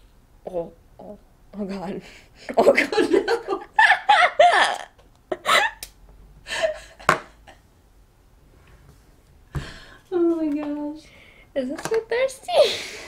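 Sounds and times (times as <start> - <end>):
girl laughing: 2.5 - 5.9, 6.5 - 7.6, 12.5 - 13.0.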